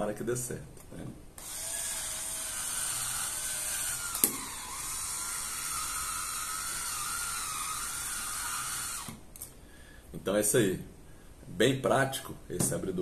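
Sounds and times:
electric wine opener motor whining: 0:01.4 - 0:09.2
sharp click: 0:04.1 - 0:04.5.

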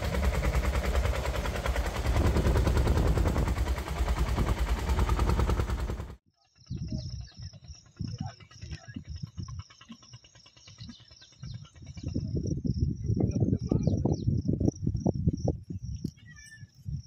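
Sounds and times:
low rumble: 0:00.0 - 0:06.1
insects chirping: 0:06.4 - 0:17.0.

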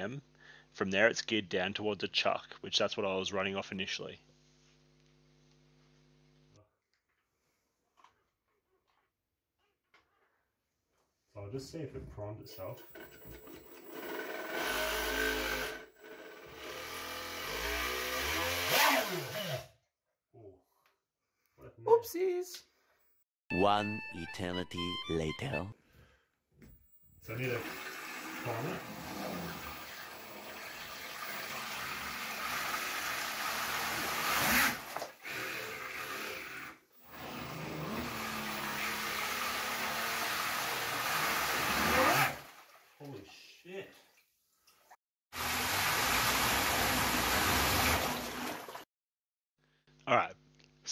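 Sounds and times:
drill motor spinning impeller: 0:12.6 - 0:19.7, 0:26.7 - 0:42.3
water churning and splashing: 0:45.6 - 0:48.8.

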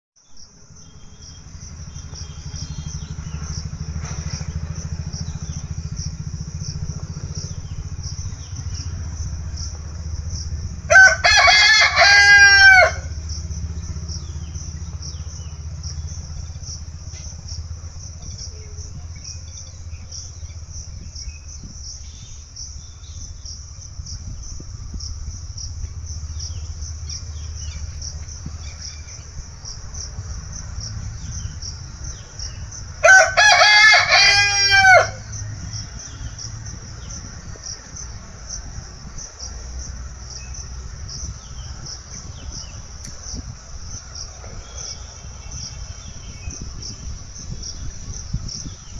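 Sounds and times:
high pulsing chirr: 0:00.3 - 0:48.9
rooster crowing: 0:10.8 - 0:13.2, 0:33.0 - 0:35.6.

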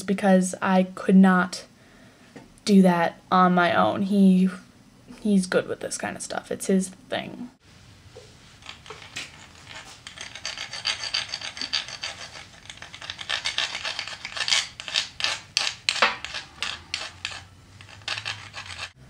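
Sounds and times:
file rasping on metal stick: 0:10.8 - 0:19.0.

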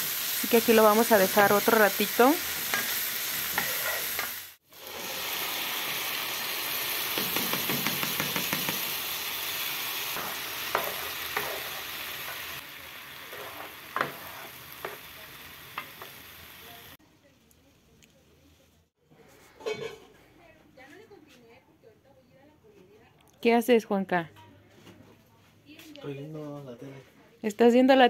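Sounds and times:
potatoes sizzling in oil: 0:00.0 - 0:17.0.

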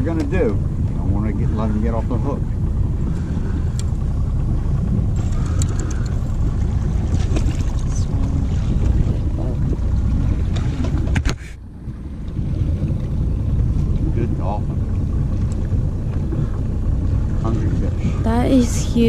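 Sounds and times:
boat on open water: 0:00.0 - 0:19.0
wind rumbling on microphone: 0:00.0 - 0:19.0.

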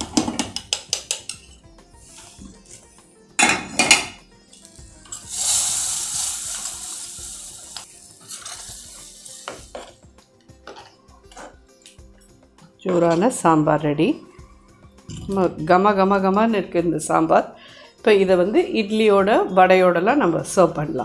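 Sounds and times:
spoon clinking against pan: 0:00.6 - 0:01.6
metal utensils clattering: 0:03.4 - 0:05.5, 0:06.3 - 0:10.0
hot oil sizzling: 0:04.5 - 0:10.1.

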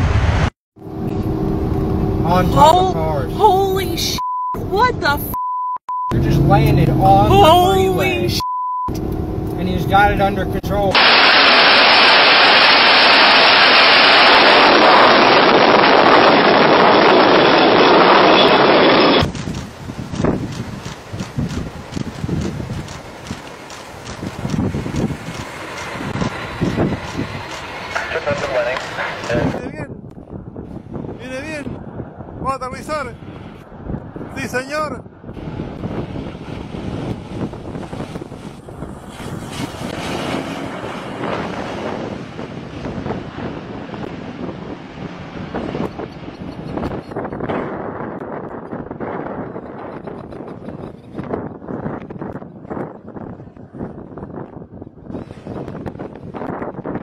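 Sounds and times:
jet engine roar: 0:00.0 - 0:03.8, 0:06.1 - 0:54.0
wind buffeting microphone: 0:13.2 - 0:57.0.

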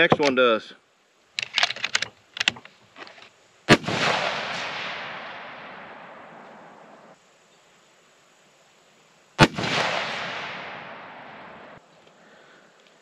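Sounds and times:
rifle bolt clicks: 0:01.4 - 0:02.7
rifle shot with rolling echo: 0:03.7 - 0:07.2, 0:09.4 - 0:11.8.

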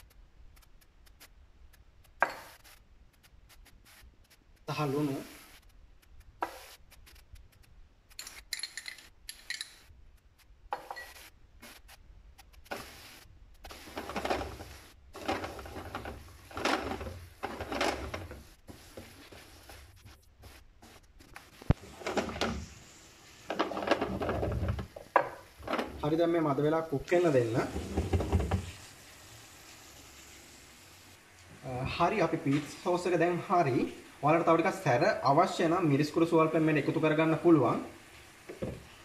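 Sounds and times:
spatula scraping sauce in pan: 0:13.7 - 0:21.0.

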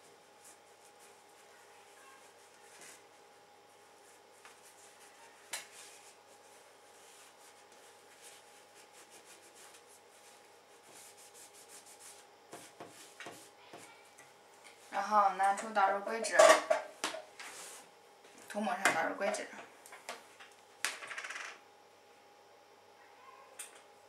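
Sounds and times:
tissue rubbing on chip: 0:04.0 - 0:13.2.

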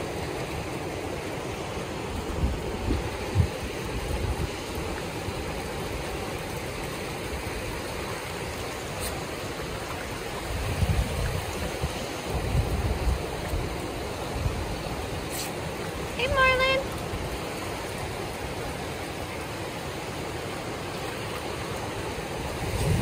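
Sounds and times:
ocean surf washing onto beach: 0:00.0 - 0:23.0
wind buffeting microphone: 0:02.1 - 0:05.0, 0:10.0 - 0:15.2, 0:22.3 - 0:23.0.

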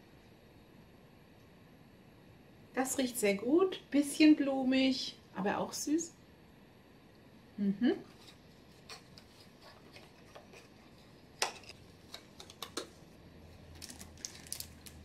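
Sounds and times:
woman humming: 0:07.6 - 0:08.1.

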